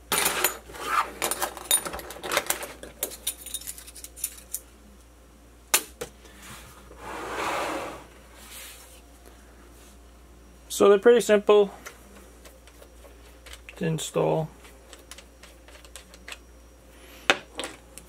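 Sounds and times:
metal washers clinking: 1.2 - 4.6.

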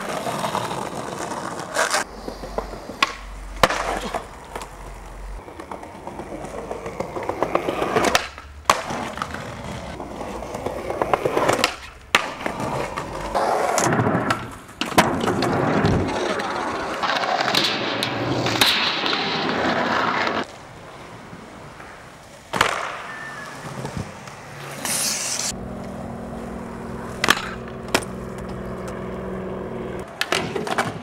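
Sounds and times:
skateboard popping and landing: 0.0 - 20.6, 21.7 - 31.0
skateboard wheels rolling on concrete: 0.0 - 31.0
low hum: 2.1 - 5.4, 25.5 - 30.1.

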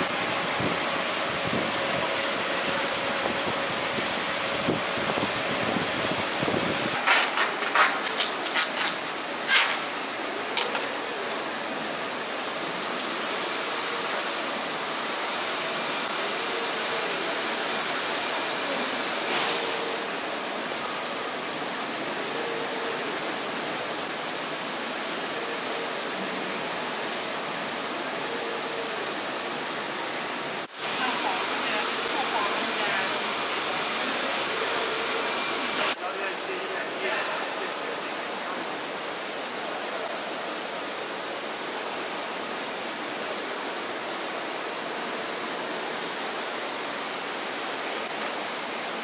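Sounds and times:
machinery hiss: 0.0 - 40.9.

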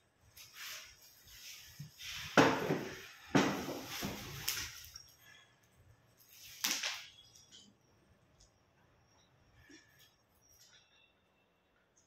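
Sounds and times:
bubble wrap rustling and crinkling: 0.2 - 5.4, 6.2 - 7.6.

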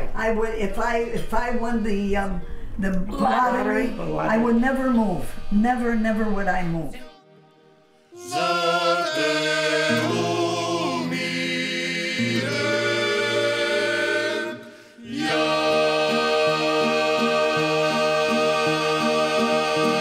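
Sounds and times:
a cappella choir singing: 7.0 - 20.0.

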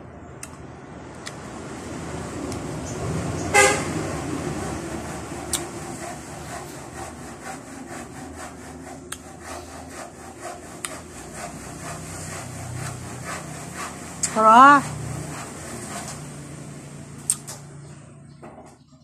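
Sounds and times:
wet sucking and chewing: 5.4 - 6.7, 17.2 - 17.5.

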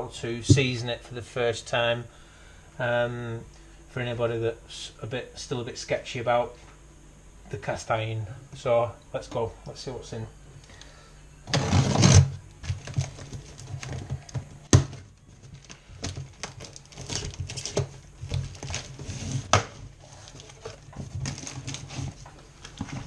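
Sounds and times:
cardboard scraping and rustling: 11.5 - 23.0.

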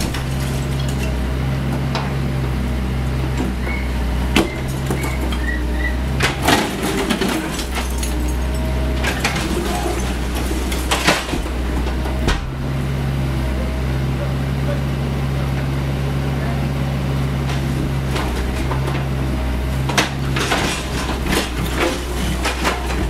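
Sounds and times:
concrete and bricks crashing down: 0.0 - 1.3, 4.3 - 12.7, 17.5 - 23.0
excavator diesel engine running: 0.0 - 23.0.

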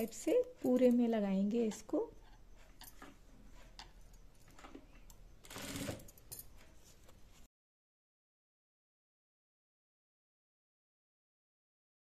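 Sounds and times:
sewing machine stitching: 5.4 - 6.2.

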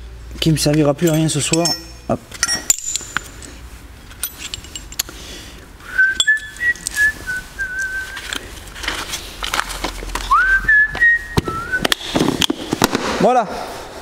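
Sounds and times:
tools clicking and knocking: 0.7 - 5.2
person whistling a tune: 5.8 - 8.3, 10.3 - 12.0.

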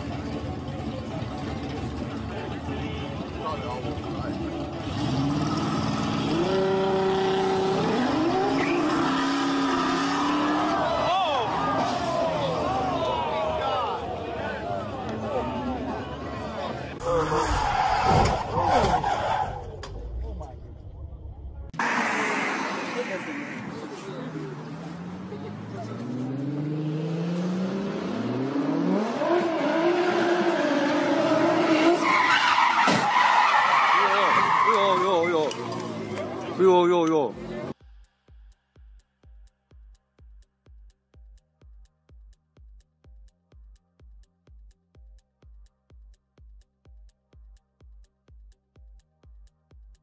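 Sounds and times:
car engine accelerating: 0.0 - 32.8
tyres squealing: 31.7 - 35.6.

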